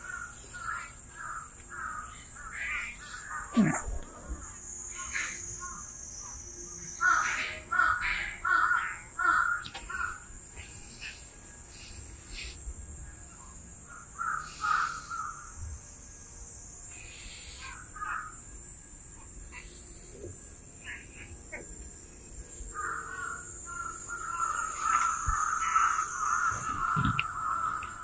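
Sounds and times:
crow cawing: 0.0s - 3.4s, 7.0s - 10.2s, 13.9s - 15.5s, 18.0s - 18.4s, 22.7s - 28.0s
high-pitched hiss: 0.0s - 28.0s.

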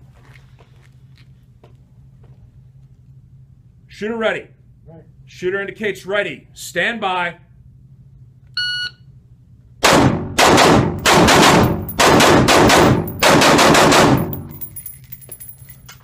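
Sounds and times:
shot timer beep: 8.6s - 9.0s
rifle shots echoing indoors: 9.8s - 14.7s.

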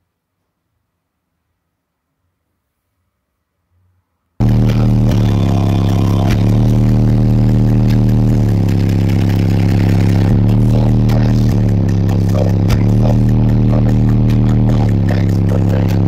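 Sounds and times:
loud distorted subwoofer bass: 4.4s - 16.0s.

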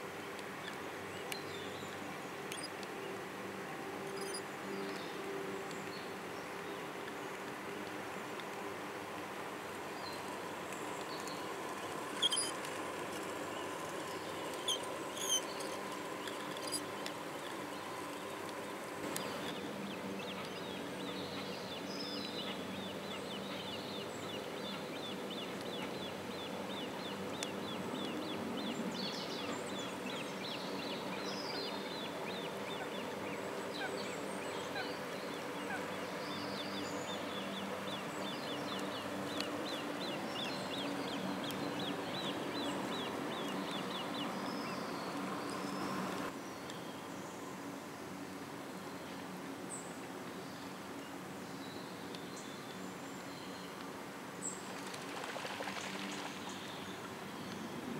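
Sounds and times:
birds chirping: 10.0s - 46.8s.

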